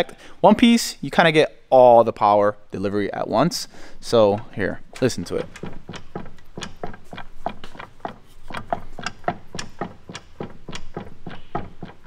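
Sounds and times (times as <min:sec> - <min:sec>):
driveline knocking and clicking: 0:04.2 - 0:12.0.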